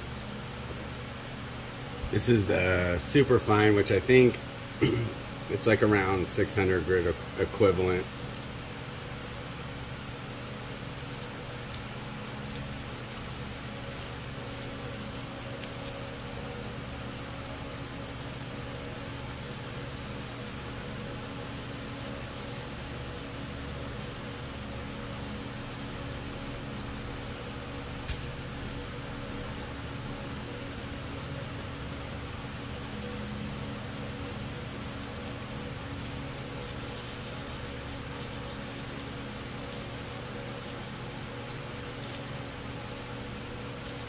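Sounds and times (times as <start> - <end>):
low hum with hiss: 0.0 - 44.0.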